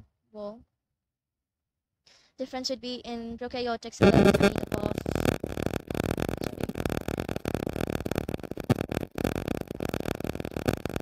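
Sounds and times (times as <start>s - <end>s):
steady noisy hiss: 4.0s - 11.0s.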